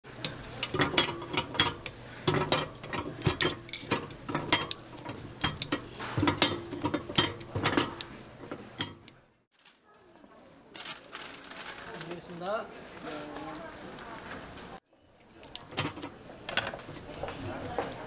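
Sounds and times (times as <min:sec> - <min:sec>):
cast iron molds clanking: 0:00.1 - 0:09.2, 0:15.4 - 0:17.9.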